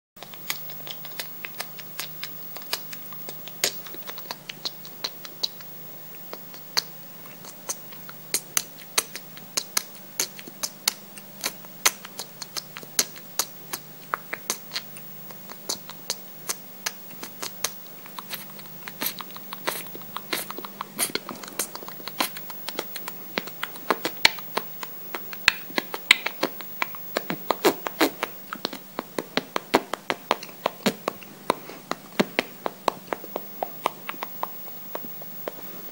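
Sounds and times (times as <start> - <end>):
mouth clicks and smacks: 0.2 - 35.9.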